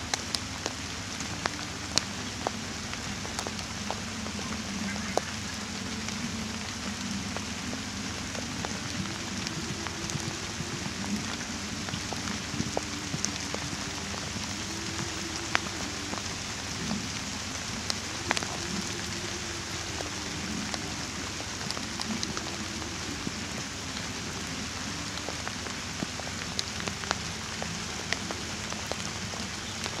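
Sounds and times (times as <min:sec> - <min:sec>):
light rain falling: 0:00.0 - 0:30.0
raindrop ticks: 0:00.0 - 0:30.0.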